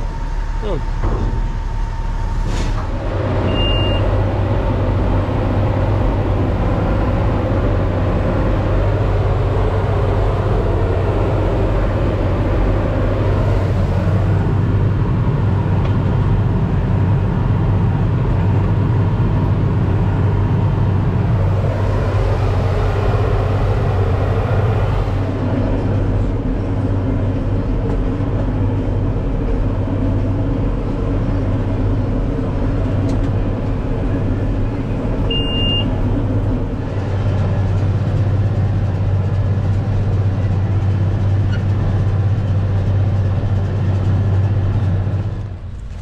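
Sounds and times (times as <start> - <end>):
tractor engine running: 0.0 - 46.0
short electronic beep: 3.5 - 4.1, 35.3 - 35.9.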